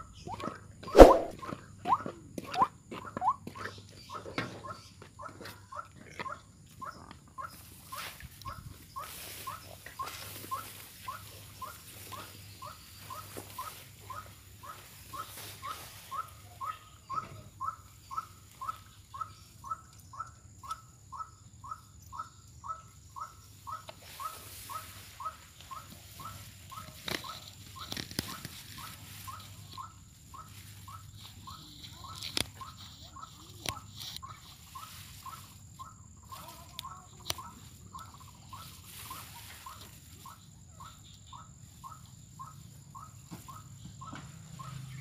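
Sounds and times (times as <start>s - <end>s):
bird calling short clipped notes: 0.9s - 1.4s.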